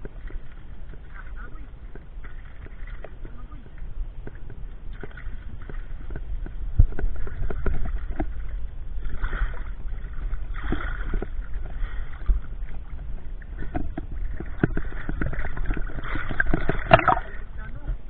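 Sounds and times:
muffled underwater rumble: 0.0 - 18.0
water sloshing: 0.0 - 18.0.

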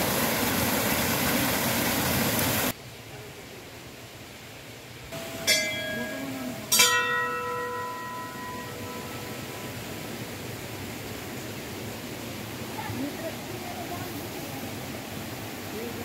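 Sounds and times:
brass bells clanging: 5.2 - 9.8.

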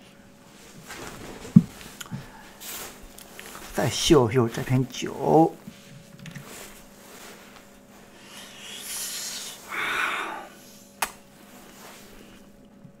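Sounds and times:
faint steady hum: 0.0 - 13.0
man wheezing exhalations: 8.2 - 10.9.

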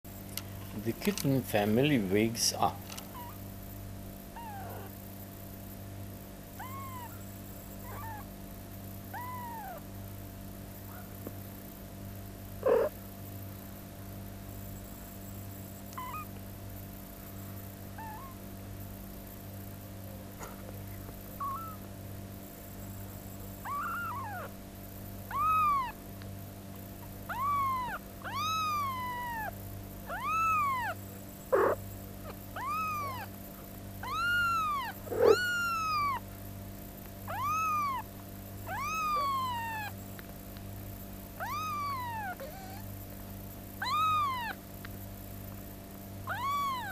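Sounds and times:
kitten mewing: 3.0 - 3.4, 4.4 - 5.0, 6.6 - 7.2, 7.8 - 8.3, 9.1 - 9.8, 12.6 - 13.0, 16.0 - 16.3, 18.0 - 18.4, 21.4 - 21.9, 23.6 - 24.5, 25.3 - 26.0, 27.3 - 33.4, 34.0 - 36.2, 37.3 - 40.0, 41.4 - 42.9, 43.8 - 44.6, 46.3 - 46.9.

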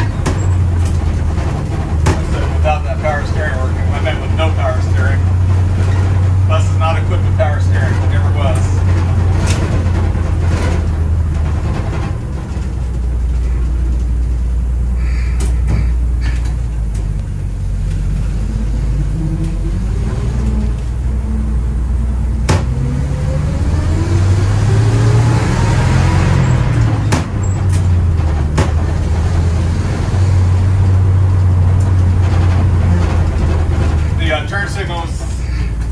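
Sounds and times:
knocks through bus body: 0.0 - 2.8, 15.4 - 16.6, 22.4 - 22.9, 26.5 - 29.6
bus engine rumbling: 0.0 - 35.9.

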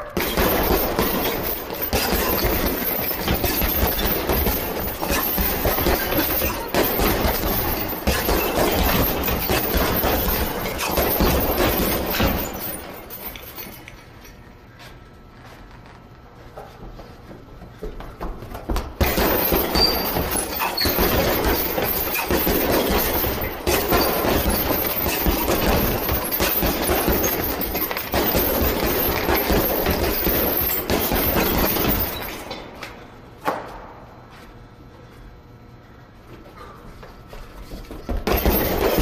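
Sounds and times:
gloved punches on heavy bag: 0.0 - 12.9, 18.7 - 32.4, 37.9 - 39.0.

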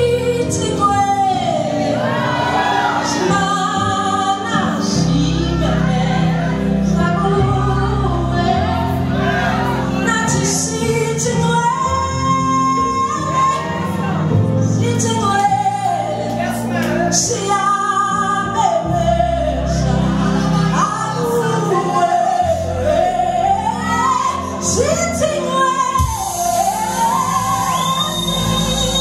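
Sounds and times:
woman singing gospel through pa: 0.0 - 9.0, 20.6 - 28.4
low musical accompaniment: 0.0 - 29.0.

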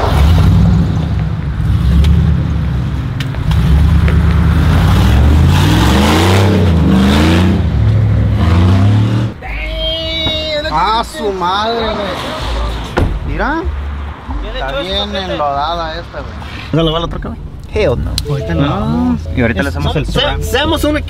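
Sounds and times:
truck engine accelerating: 0.0 - 9.4.

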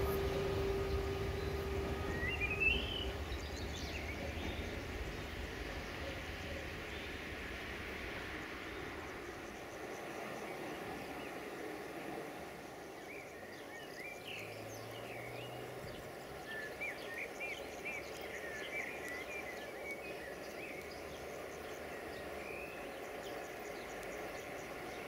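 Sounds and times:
small birds chirping: 0.0 - 7.3, 12.8 - 25.0
low background rumble: 0.0 - 12.0.

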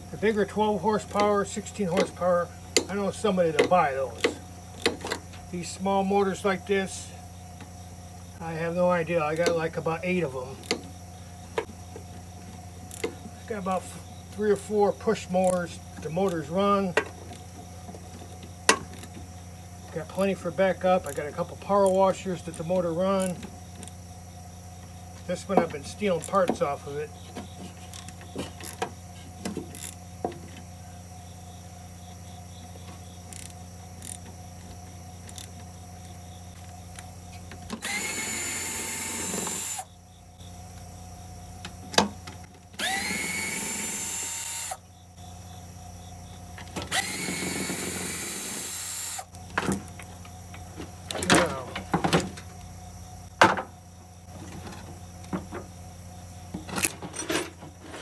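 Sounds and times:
cordless drill whirring: 37.8 - 39.8, 42.8 - 44.8, 46.9 - 49.3.

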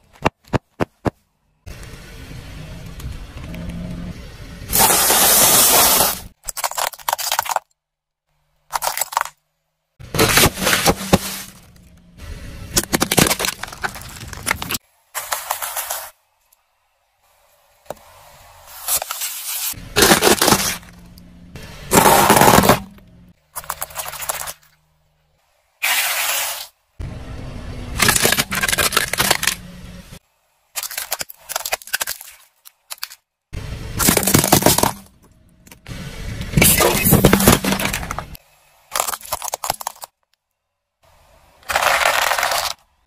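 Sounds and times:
tyre crushing plastic toys: 4.7 - 7.8, 8.7 - 9.4, 10.1 - 11.8, 12.7 - 16.1, 19.9 - 21.0, 21.9 - 24.7, 28.0 - 29.6, 30.7 - 33.3, 34.0 - 35.8, 36.6 - 40.3, 41.6 - 43.0.

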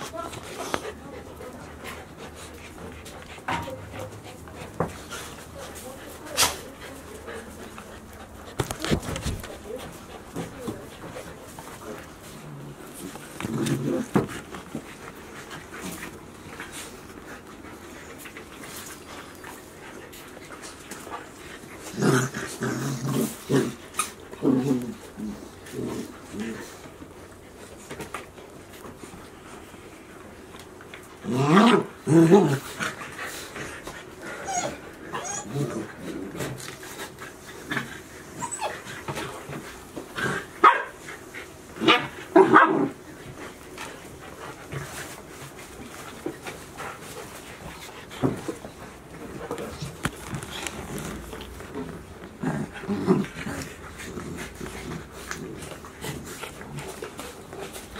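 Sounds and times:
dogs play-growling: 0.0 - 57.9
puppies barking in play: 30.3 - 57.9.

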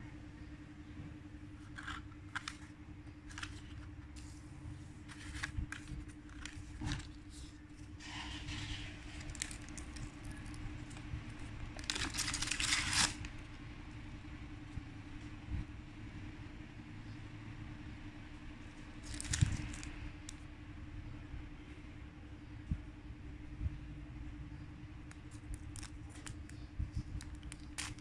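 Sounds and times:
faint steady hum: 0.0 - 28.0
stiff card clicking and rustling: 1.6 - 4.4, 5.0 - 7.6, 25.1 - 28.0.

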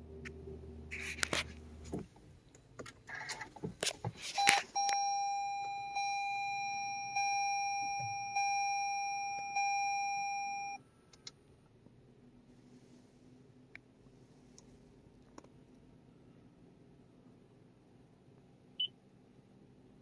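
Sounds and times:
car warning chime: 4.4 - 10.8.

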